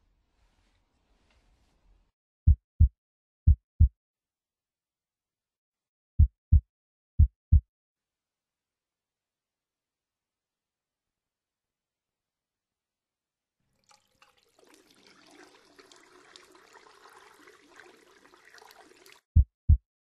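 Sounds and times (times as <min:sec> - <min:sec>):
heartbeat thumps: 0:02.5 - 0:02.9, 0:06.2 - 0:06.6, 0:07.2 - 0:07.6, 0:19.4 - 0:19.8.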